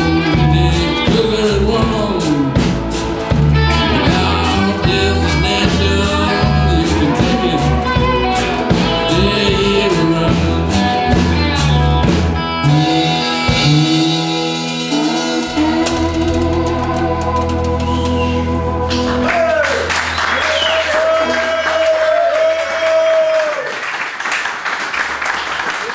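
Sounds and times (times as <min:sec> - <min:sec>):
person singing: 0:00.0 - 0:02.8, 0:03.5 - 0:12.0, 0:12.6 - 0:19.8
ringing guitars: 0:00.0 - 0:21.9
blues-rock band playing: 0:00.0 - 0:22.4.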